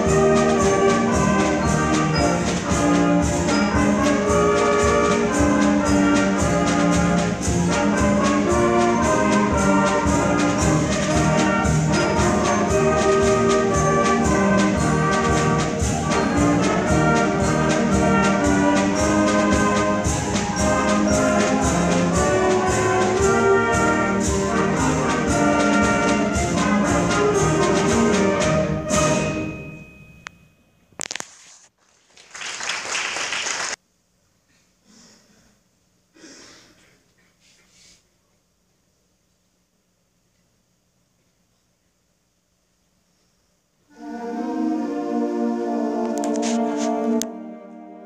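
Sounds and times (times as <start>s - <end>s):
trumpets and trombones: 0.0s - 29.8s, 43.9s - 48.0s
concert band playing: 0.0s - 30.1s.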